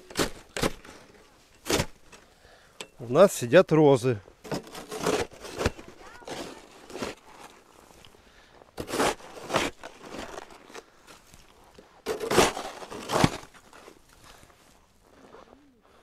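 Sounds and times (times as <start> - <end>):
plastic shovel scraping snow: 4.4 - 8.1, 8.8 - 15.6.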